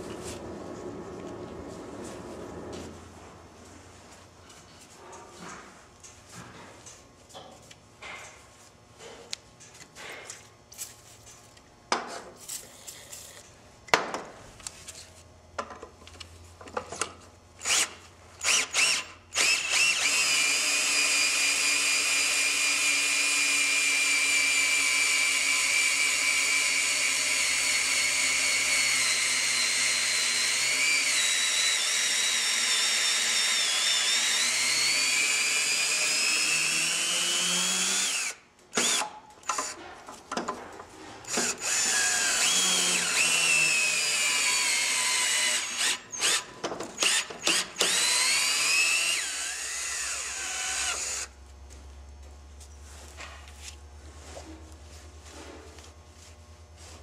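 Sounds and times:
cordless drill whining: 0:17.6 - 0:39.1, 0:41.3 - 0:51.3.

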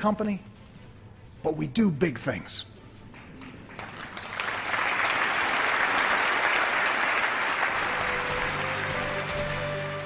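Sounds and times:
large audience applauding: 0:03.1 - 0:10.0.

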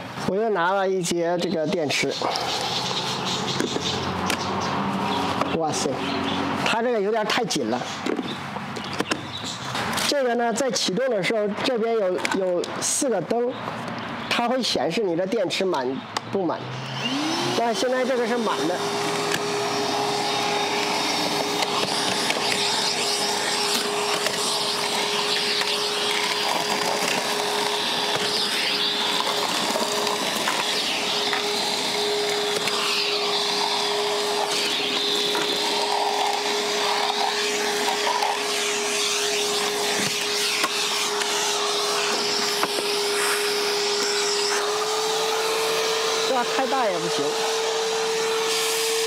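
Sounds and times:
vacuum motor whine: 0:01.4 - 0:07.1, 0:16.2 - 0:49.0.

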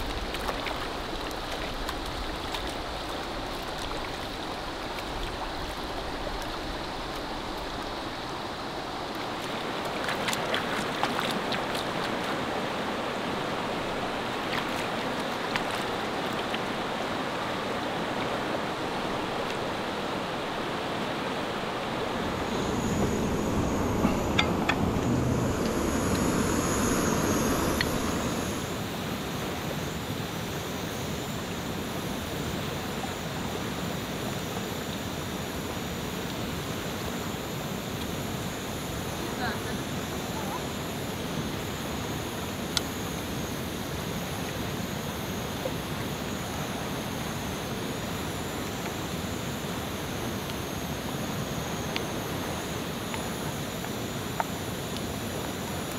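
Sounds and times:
river rushing over rocks: 0:00.0 - 0:28.9.

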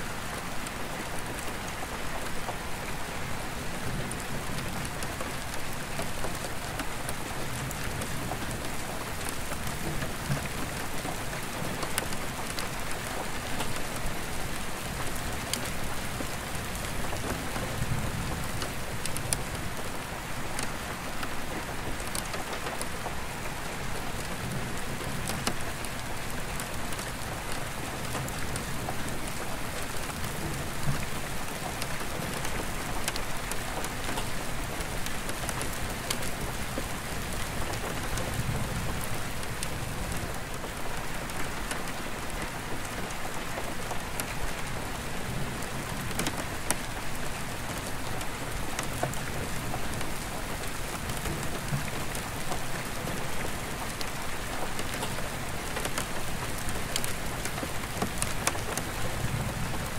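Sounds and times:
rain on glass: 0:00.1 - 0:59.9.

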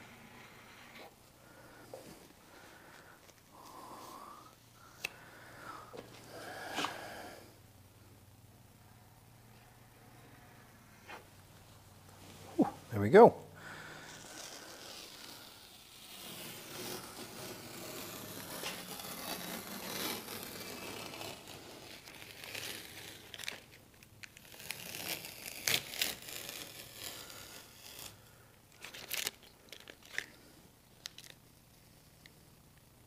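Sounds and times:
masking tape peeling and tearing: 0:13.7 - 0:30.4, 0:31.0 - 0:32.3.

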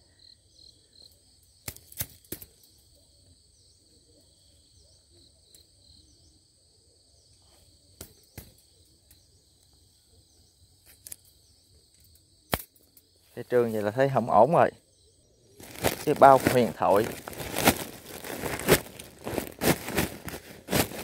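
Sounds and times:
high insect chirping: 0:00.0 - 0:21.0
metallic clicks of wire trap: 0:01.6 - 0:02.5, 0:12.0 - 0:13.0.

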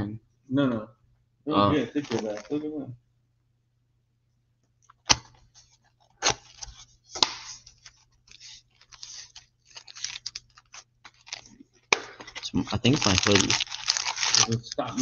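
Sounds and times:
rustling cardboard and wrappers: 0:01.8 - 0:02.6, 0:05.2 - 0:15.0.

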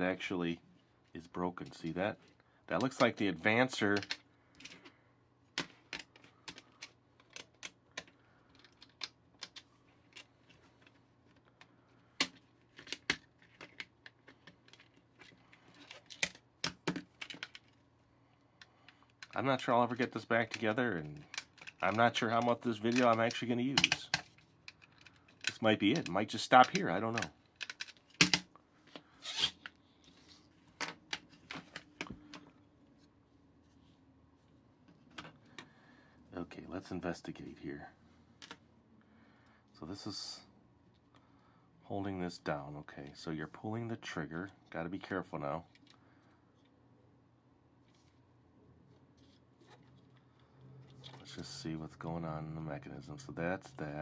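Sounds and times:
plastic parts clicking and tapping: 0:03.9 - 0:04.9, 0:05.5 - 0:17.8, 0:18.6 - 0:19.4, 0:20.4 - 0:28.5, 0:38.4 - 0:38.6
plastic toy clicks and knocks: 0:22.9 - 0:28.5.

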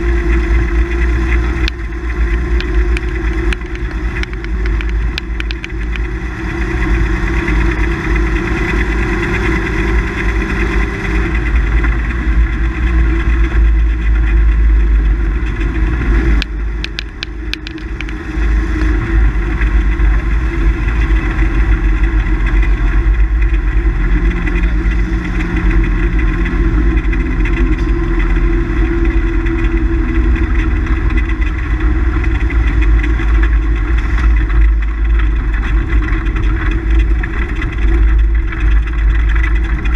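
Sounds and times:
car engine under load: 0:00.0 - 0:39.9
tyre and road noise: 0:00.0 - 0:39.9
sharp clicks: 0:16.3 - 0:18.2.

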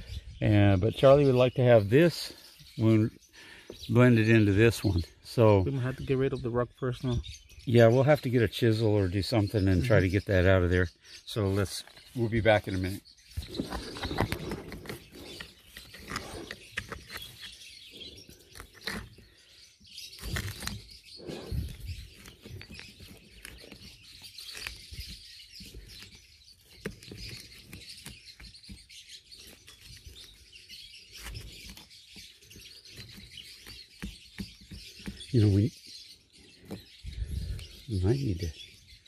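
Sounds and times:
small birds chirping: 0:00.0 - 0:39.0
metal tool scraping wood: 0:13.4 - 0:19.5.

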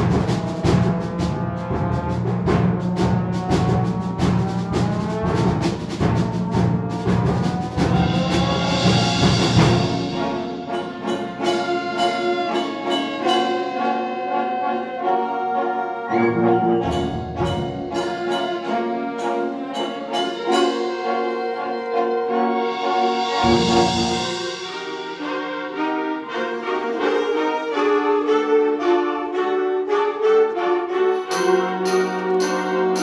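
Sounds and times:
concert band playing live: 0:00.0 - 0:25.8.

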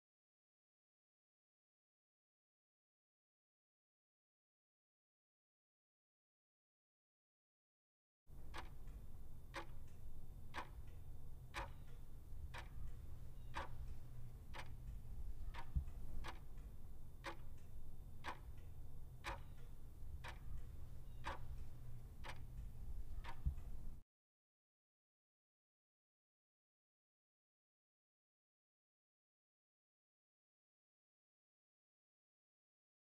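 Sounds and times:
clock ticking: 0:08.3 - 0:24.0
low steady hum: 0:08.3 - 0:24.0.

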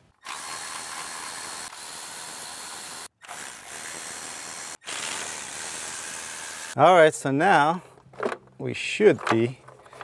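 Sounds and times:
power tool spinning out bolts: 0:00.2 - 0:06.8.

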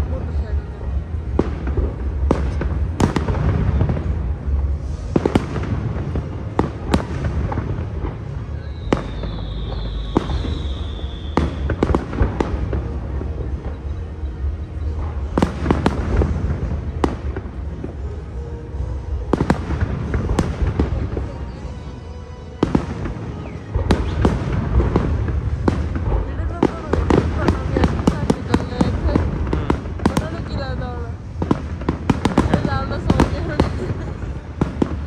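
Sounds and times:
high firework whistle: 0:08.2 - 0:12.8, 0:22.6 - 0:26.0.

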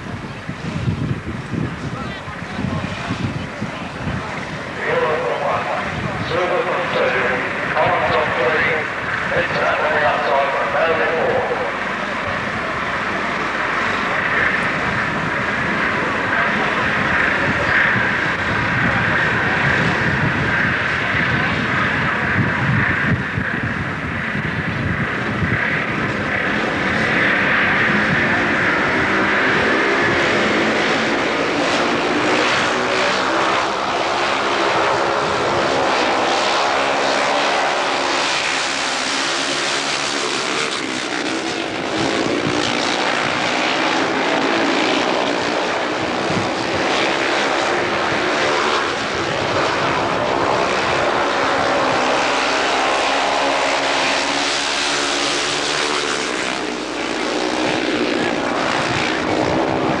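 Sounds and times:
motorcycles racing: 0:00.0 - 1:00.0.

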